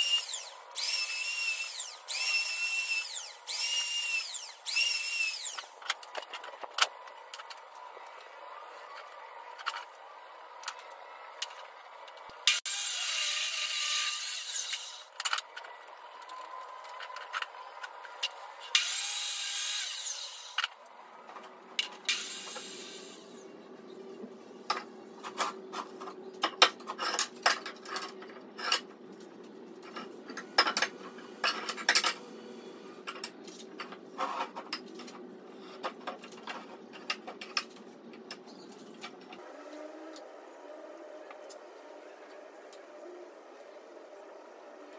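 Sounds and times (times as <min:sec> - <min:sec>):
power saw cutting wood: 0:00.0 - 0:05.8, 0:12.5 - 0:15.2, 0:18.6 - 0:20.7, 0:22.1 - 0:23.4.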